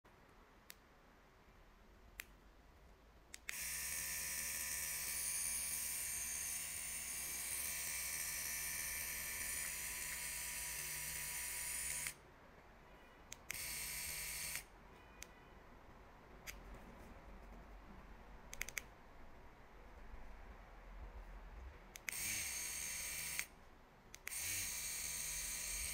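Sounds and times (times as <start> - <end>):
tattoo machine motor running: 3.5 - 12.2, 13.5 - 14.7, 22.1 - 23.5, 24.2 - 25.9.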